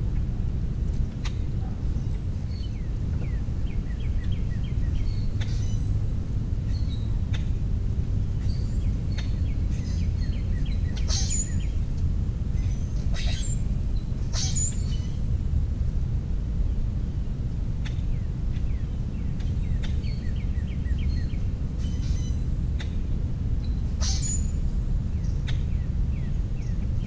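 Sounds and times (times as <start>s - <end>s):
low outdoor rumble: 0.0s - 27.0s
birds chirping and calling: 2.0s - 6.0s, 8.4s - 11.8s, 12.6s - 15.2s, 17.8s - 23.0s, 23.6s - 27.0s.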